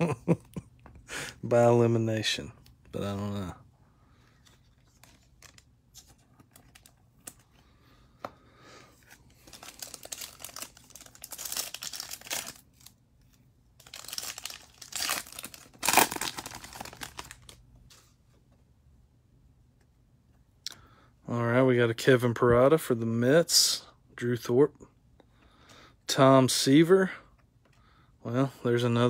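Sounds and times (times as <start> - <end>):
foil wrapper tearing and crinkling: 9.4 - 12.9, 13.8 - 17.6.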